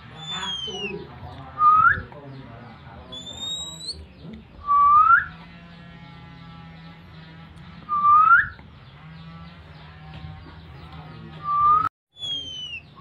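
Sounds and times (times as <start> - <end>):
faint chattering birdsong: 0.0 - 13.0
bird rising whistle calls: 0.2 - 0.9, 4.7 - 5.3, 7.9 - 8.6, 11.5 - 12.8.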